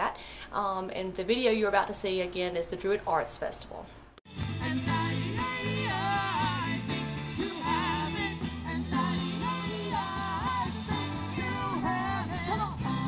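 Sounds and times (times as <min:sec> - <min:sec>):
bass notes: 0:04.3 - 0:13.0
person singing lead: 0:04.6 - 0:13.0.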